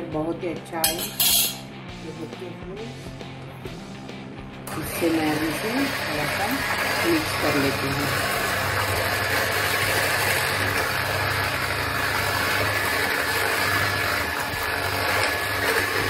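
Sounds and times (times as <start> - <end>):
electric hand mixer whisking: 4.7 - 16.0.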